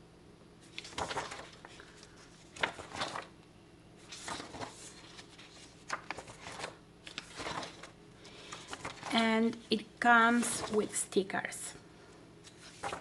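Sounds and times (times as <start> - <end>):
paper pages being turned: 0.6 - 3.3, 4.0 - 11.1, 12.4 - 13.0.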